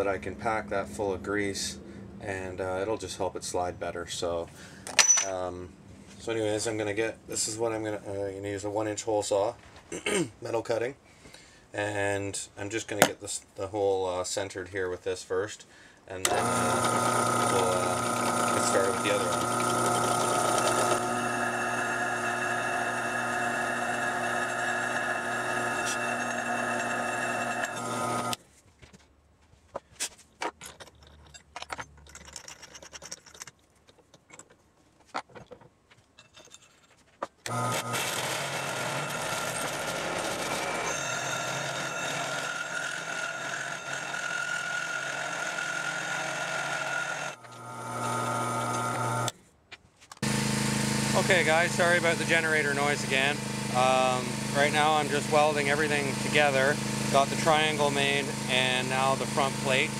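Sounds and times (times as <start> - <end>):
drill bit drilling steel: 16.2 - 28.4, 37.5 - 49.3, 50.2 - 59.9
drill press motor running: 16.2 - 28.4, 37.5 - 49.3, 50.2 - 59.9
hole saw cutting metal: 16.2 - 28.4, 37.5 - 49.3, 50.2 - 59.9.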